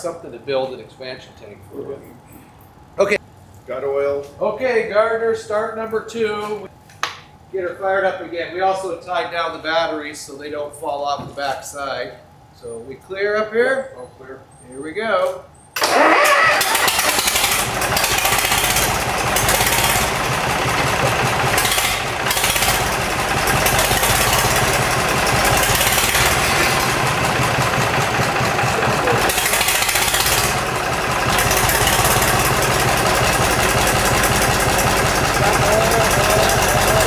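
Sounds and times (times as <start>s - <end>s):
marine diesel engine running: 16.1s - 37.0s.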